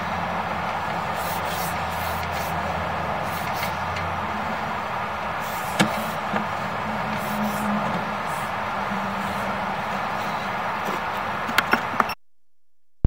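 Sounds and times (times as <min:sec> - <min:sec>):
cable hissing sweeps: 0:01.0 - 0:04.7, 0:05.3 - 0:10.6.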